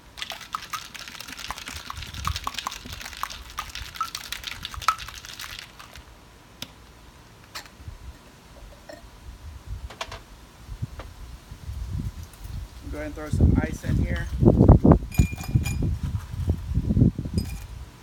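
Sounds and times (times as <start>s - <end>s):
ice rattling in cocktail shaker: 0.0s - 6.1s.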